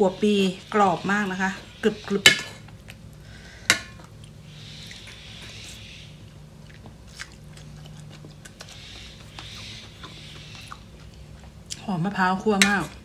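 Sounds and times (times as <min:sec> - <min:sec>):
person chewing crunchy food: 0:02.6 - 0:11.9.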